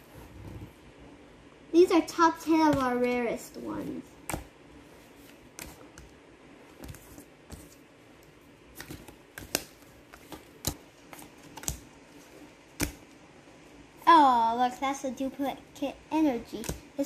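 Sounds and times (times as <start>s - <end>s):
cards tapping on cards: 8.8s - 11.9s, 12.7s - 13.1s.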